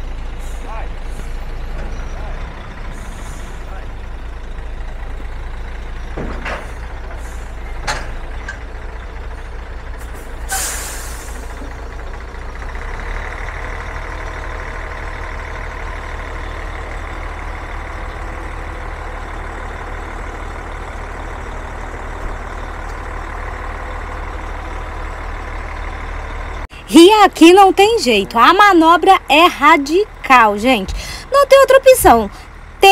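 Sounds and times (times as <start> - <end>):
diesel truck engine idling: 0.0 - 32.9
short air hisses: 10.5 - 11.5
air-brake hiss: 10.5 - 11.7.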